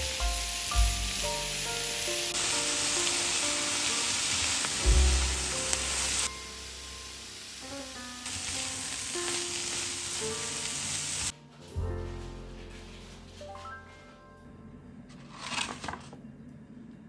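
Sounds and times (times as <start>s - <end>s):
vegetables sizzling in frying pan: 0.0s - 11.3s.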